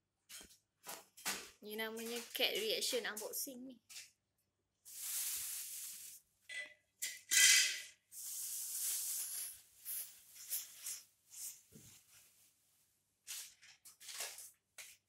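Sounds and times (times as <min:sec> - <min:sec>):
plastic packaging crinkling: 0:13.3 - 0:14.6.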